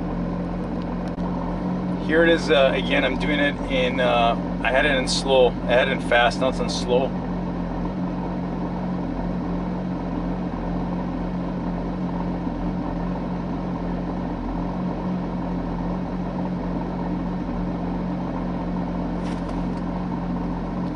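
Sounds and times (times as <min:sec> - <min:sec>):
car engine drone inside cabin: 0:00.0 - 0:20.9.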